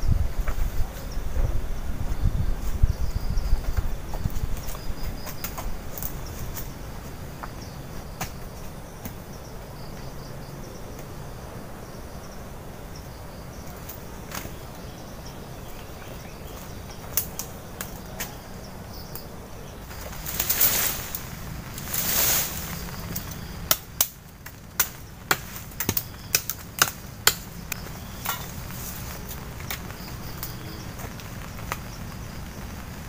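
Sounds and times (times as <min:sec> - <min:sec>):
quiet forest ambience: 0:00.0 - 0:33.0
rustling foliage: 0:00.0 - 0:33.0
bamboo poles knocking: 0:23.6 - 0:28.7.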